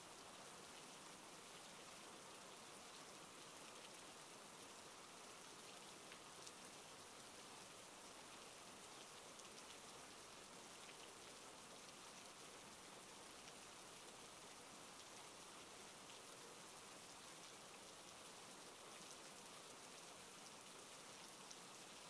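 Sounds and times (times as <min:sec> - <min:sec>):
faint steady rainfall: 0:00.0 - 0:22.0.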